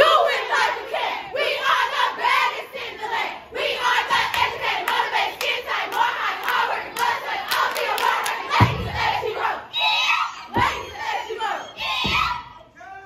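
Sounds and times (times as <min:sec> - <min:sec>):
women chanting together: 0:00.0 - 0:12.5
rhythmic hand claps: 0:04.1 - 0:09.3.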